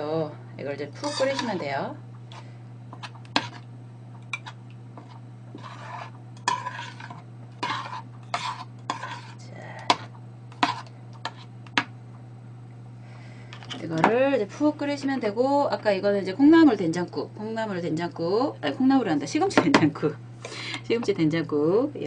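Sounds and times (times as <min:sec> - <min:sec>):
steady low hum: 0:00.0 - 0:22.0
metal spoon scraping a pot: 0:01.0 - 0:01.7, 0:02.3 - 0:03.7, 0:04.3 - 0:11.5.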